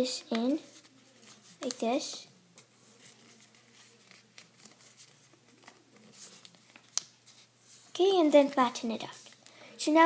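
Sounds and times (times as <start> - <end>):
paper rustling and crinkling: 0.3 - 2.0, 2.6 - 9.5.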